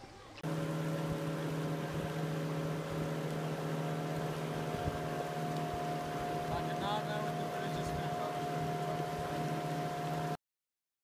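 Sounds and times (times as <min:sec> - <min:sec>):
boat engine drone: 0:00.3 - 0:10.4.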